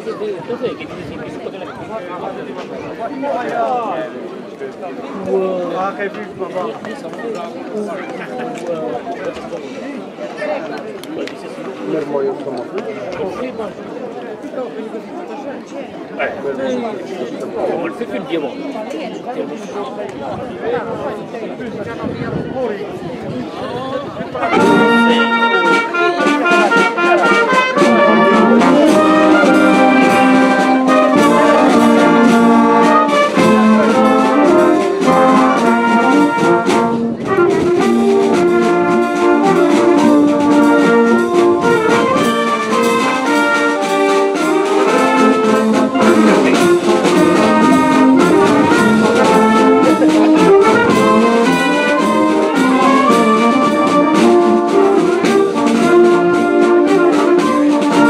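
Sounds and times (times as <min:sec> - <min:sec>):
wind band playing a tune: 0:24.2 - 0:58.0.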